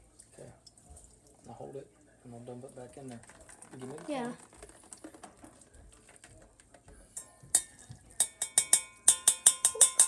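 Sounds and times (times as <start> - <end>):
strainer clanking on saucepan rim: 7.2 - 10.0.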